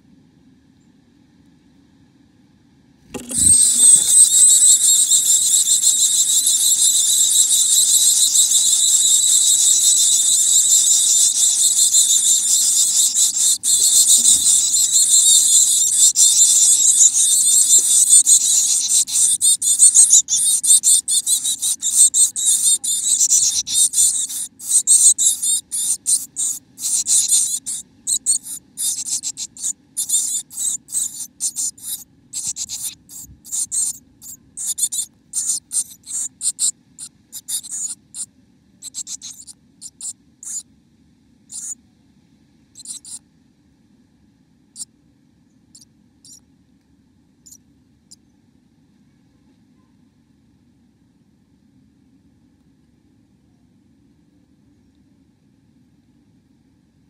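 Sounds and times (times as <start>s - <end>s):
nestlings begging hissing chorus: 3.2s - 40.6s, 41.5s - 41.8s, 42.8s - 43.2s.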